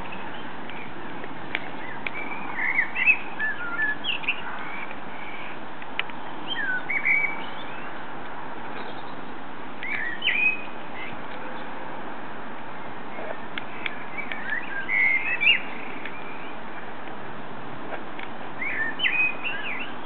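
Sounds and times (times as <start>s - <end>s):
bonfire crackling clicks: 0.0s - 2.2s, 4.2s - 5.1s, 5.8s - 6.2s, 17.0s - 17.3s, 17.9s - 18.4s
blackbird singing: 1.7s - 5.6s, 6.4s - 8.0s, 8.7s - 9.2s, 9.8s - 11.7s, 13.1s - 16.6s, 18.6s - 20.0s.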